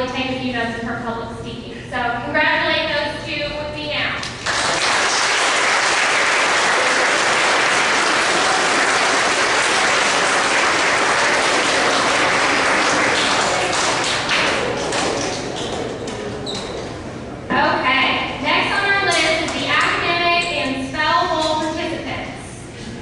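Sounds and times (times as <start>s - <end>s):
audience applauding: 4.3s - 16.1s.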